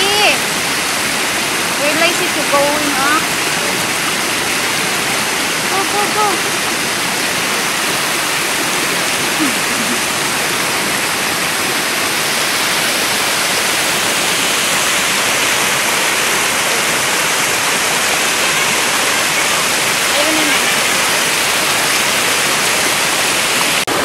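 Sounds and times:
waterfall rushing into pool: 0.0 - 24.0.

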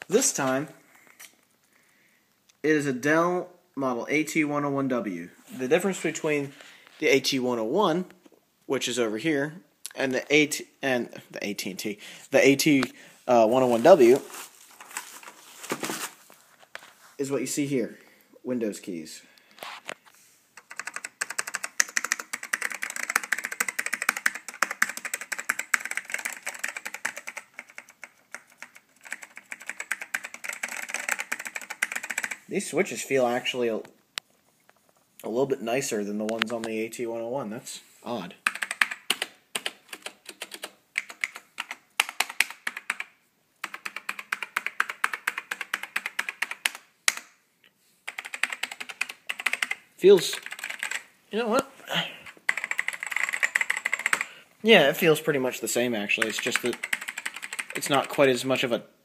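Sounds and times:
fast keyboard typing: 20.6 - 32.4, 38.4 - 47.2, 48.1 - 51.1, 52.4 - 54.3, 56.1 - 58.2.

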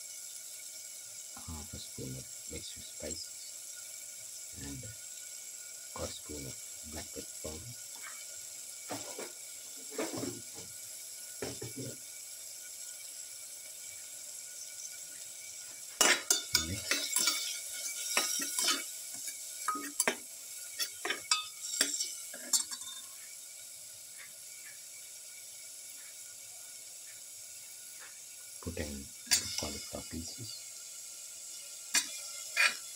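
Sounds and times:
faint sizzle: 0.0 - 32.9
spatula scraping metal pot: 16.0 - 23.0, 32.0 - 32.9.

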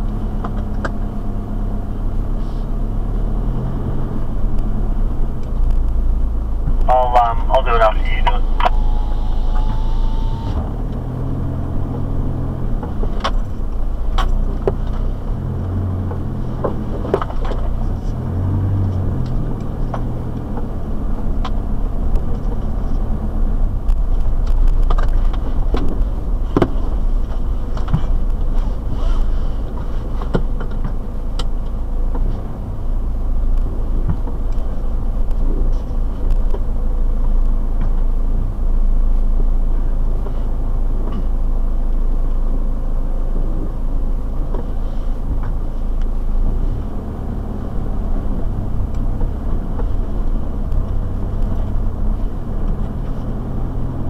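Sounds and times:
car engine low rumble: 0.0 - 54.0
vehicle knocks and rattles: 11.8 - 36.8, 47.9 - 54.0.

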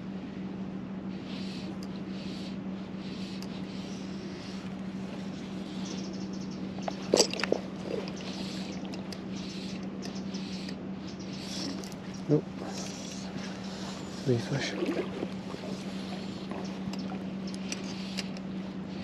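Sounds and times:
river water rushing: 14.4 - 15.8.

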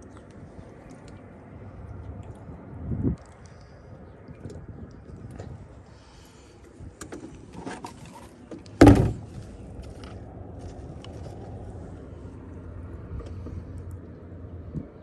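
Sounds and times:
loud thump against boat: 8.8 - 9.4.

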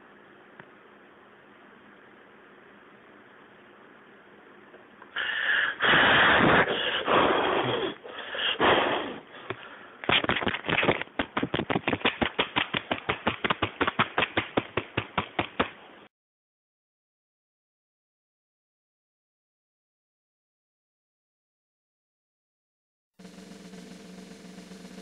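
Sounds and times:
person blowing out candles: 5.1 - 9.8
fast hand claps: 10.1 - 15.8.

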